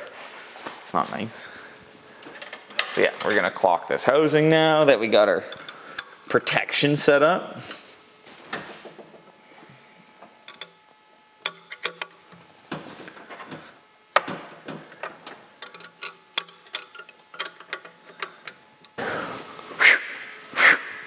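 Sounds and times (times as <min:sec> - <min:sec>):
wrench metal clicks: 0:10.4 - 0:10.8, 0:11.4 - 0:12.2, 0:15.6 - 0:19.0.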